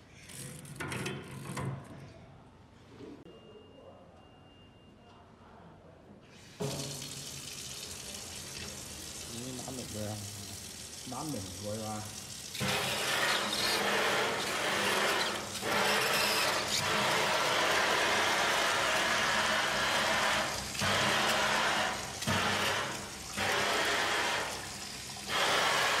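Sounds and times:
faucet spraying into steel sink: 6.5s - 26.0s.

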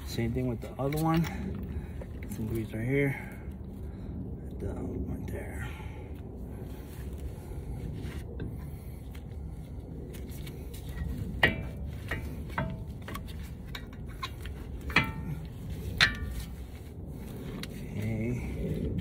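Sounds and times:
low background rumble: 0.0s - 19.0s.

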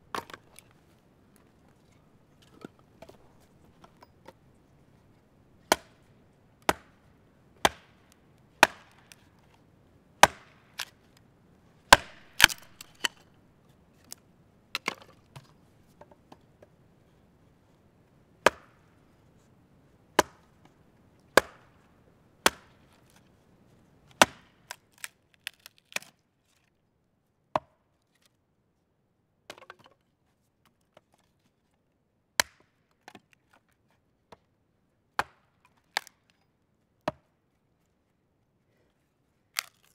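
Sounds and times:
axe chopping log: 5.7s - 6.0s, 6.6s - 7.0s, 7.6s - 8.0s, 8.6s - 9.2s, 10.2s - 11.0s, 11.9s - 13.2s, 18.4s - 18.8s, 21.4s - 21.7s, 22.4s - 22.8s, 24.2s - 26.1s, 32.4s - 32.7s, 35.2s - 36.2s.

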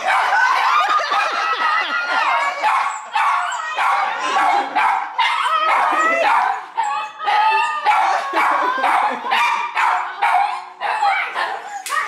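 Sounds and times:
women shrieking and squealing: 0.0s - 4.8s, 5.4s - 9.2s.

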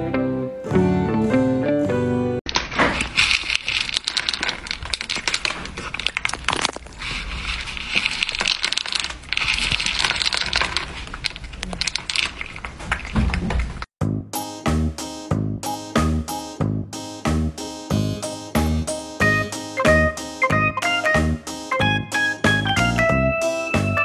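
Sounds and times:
cat crunching dry kibble: 2.5s - 13.9s.

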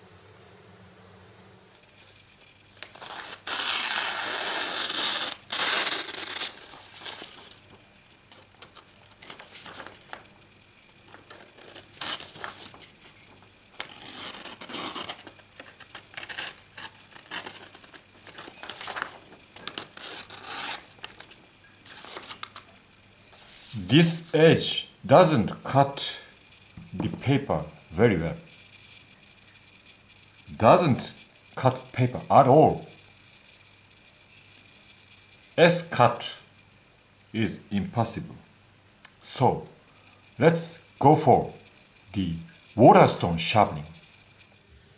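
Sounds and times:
paper rustling and tearing: 2.8s - 7.7s, 8.3s - 10.2s, 11.0s - 13.2s, 13.8s - 22.7s.

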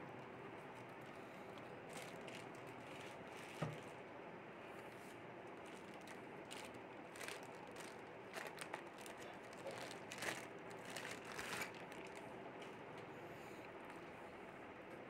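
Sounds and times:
plastic bag crinkling: 1.8s - 3.9s, 5.6s - 12.3s.

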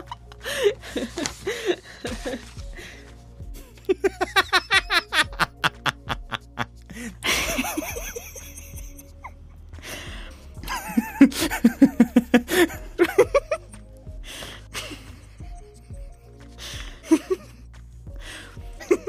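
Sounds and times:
background music: 0.0s - 19.0s
human laughter: 3.8s - 9.4s, 10.6s - 13.7s, 16.9s - 17.6s.

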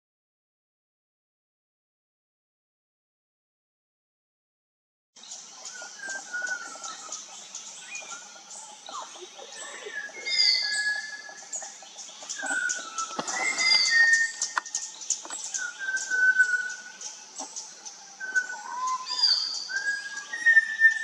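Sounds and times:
chorus of high chirps: 5.3s - 21.0s
thrush whistling: 12.4s - 14.8s, 15.5s - 16.9s, 18.2s - 21.0s.

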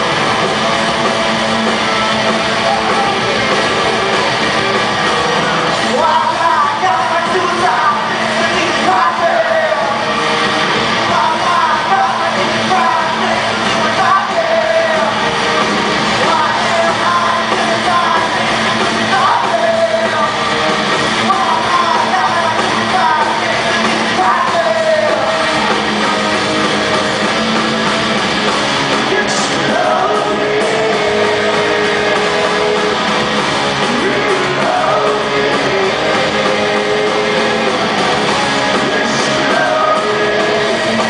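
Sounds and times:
drums: 0.0s - 41.0s
electric guitars: 0.0s - 41.0s
person singing: 1.7s - 26.0s, 28.9s - 41.0s.

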